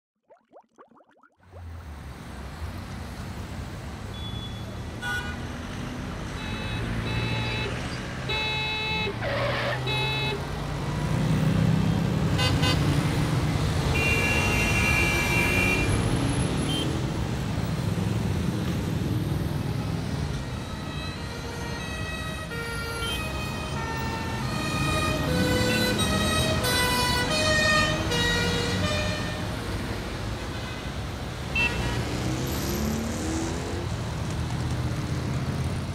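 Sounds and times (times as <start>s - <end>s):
traffic rumble: 9.0s - 35.9s
car horns honking: 13.9s - 16.0s.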